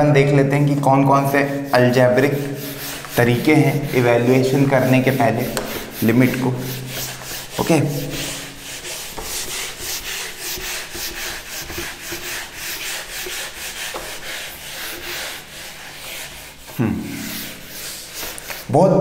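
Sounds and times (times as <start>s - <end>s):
eraser rubbing whiteboard: 0.2s - 18.7s.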